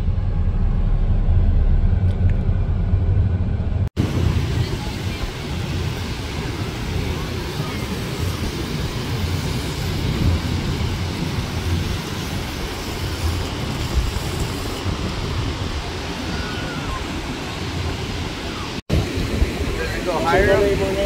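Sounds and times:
wind buffeting microphone: 0:00.0 - 0:21.0
surf breaking on beach: 0:04.0 - 0:21.0.

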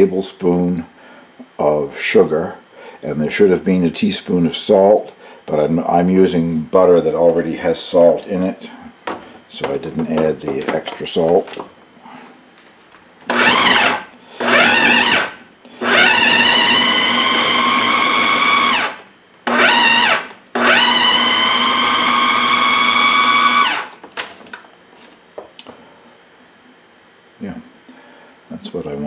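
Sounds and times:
food processor motor whirring: 0:13.2 - 0:24.0.

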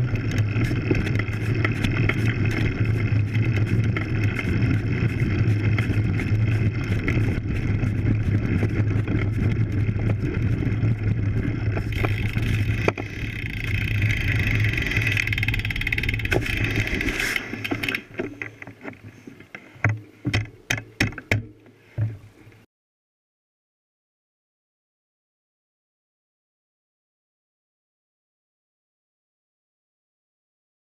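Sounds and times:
bike tyres rumbling on gravel: 0:00.0 - 0:19.2
wind noise: 0:00.0 - 0:19.2.

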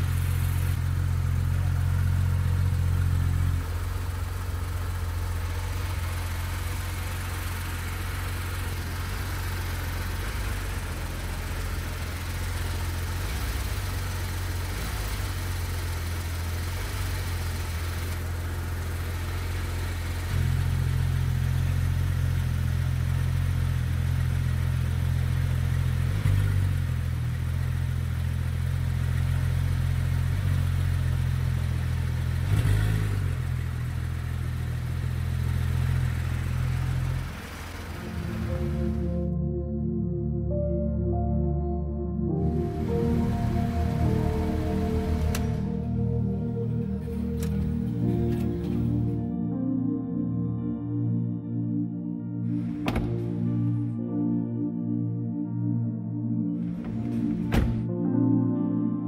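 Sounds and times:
car engine idling: 0:00.0 - 0:40.0, 0:42.3 - 0:49.3, 0:52.2 - 0:54.0, 0:56.5 - 0:57.9
engine blip: 0:42.4 - 0:49.2.

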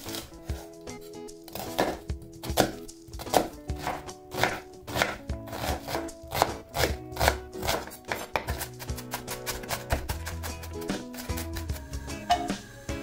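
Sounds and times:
knife chopping on wooden board: 0:01.5 - 0:11.8.

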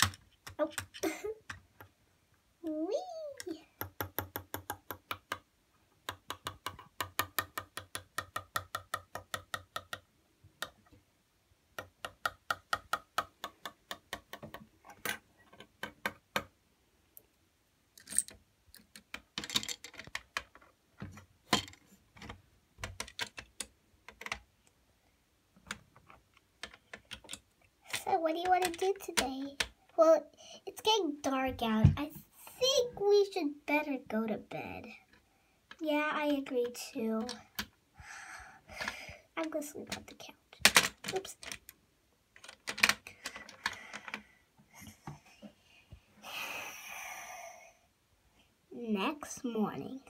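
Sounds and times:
plastic clicks and taps: 0:00.0 - 0:01.9, 0:03.4 - 0:11.0, 0:11.8 - 0:16.5, 0:18.2 - 0:24.5, 0:25.6 - 0:29.8.

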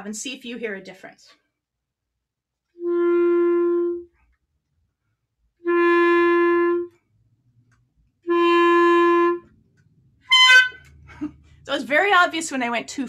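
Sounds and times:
clarinet playing held notes: 0:02.8 - 0:04.1, 0:05.6 - 0:07.0, 0:08.2 - 0:09.5, 0:10.3 - 0:10.9
clarinet squeak: 0:10.3 - 0:10.9.

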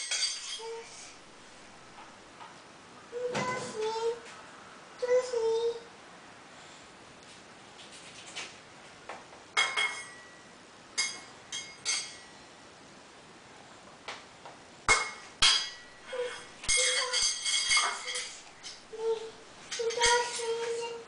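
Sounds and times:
metal spoon clinking metal pot: 0:00.0 - 0:00.7, 0:09.6 - 0:10.4, 0:11.0 - 0:12.3, 0:14.9 - 0:18.9, 0:19.6 - 0:20.4.

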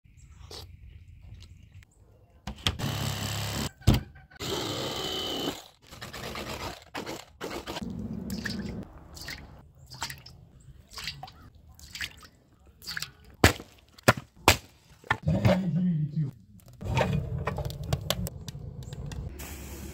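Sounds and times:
water splashing and dripping: 0:07.8 - 0:13.8.

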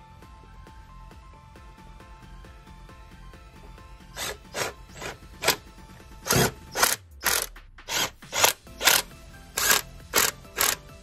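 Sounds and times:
ratchet wrench clicking: 0:04.2 - 0:05.6, 0:06.2 - 0:11.0.

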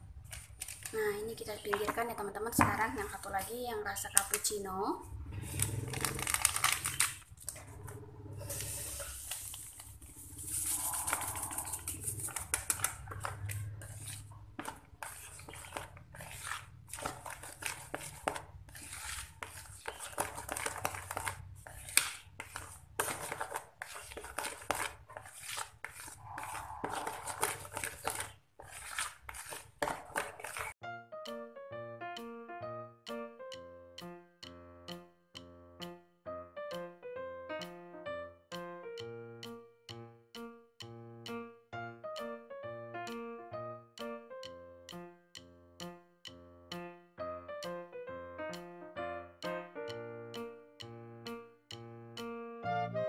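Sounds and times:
spatula scraping plastic bowl: 0:05.6 - 0:30.8.

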